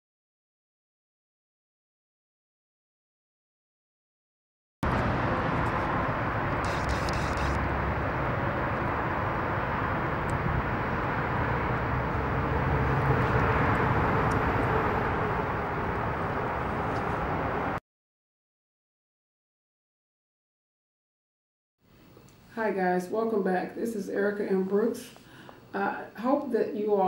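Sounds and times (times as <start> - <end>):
outdoor ambient rumble: 4.8 - 17.8.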